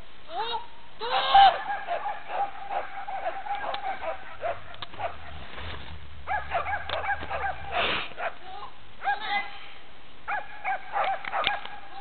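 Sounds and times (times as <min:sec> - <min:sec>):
dog barking in high yaps: 0:01.1 - 0:05.4, 0:06.2 - 0:09.5, 0:10.3 - 0:12.0.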